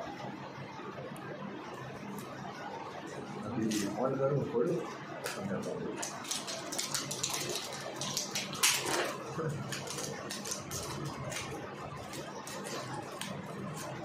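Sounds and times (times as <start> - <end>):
packaging rustling and clicking: 6.1 - 14.0.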